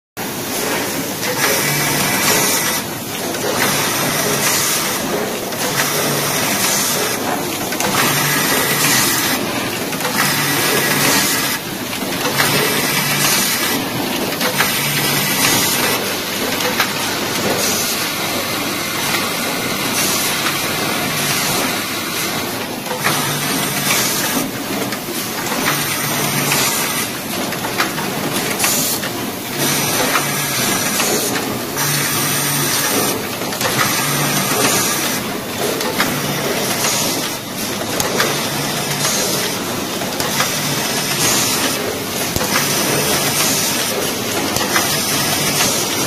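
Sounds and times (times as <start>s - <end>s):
sharp machine clicks: 0.6s - 17.8s, 19.9s - 46.0s
soldering machine mechanical noise: 0.6s - 46.0s.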